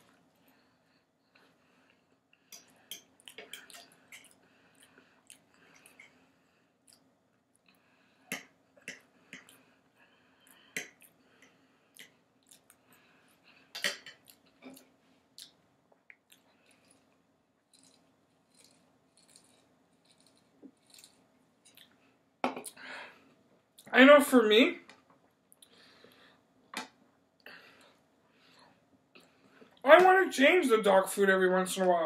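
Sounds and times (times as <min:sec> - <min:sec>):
faint steady hum: 0:00.0 - 0:32.0
chewing and mouth noises: 0:03.2 - 0:06.0, 0:11.9 - 0:12.9, 0:14.2 - 0:22.0.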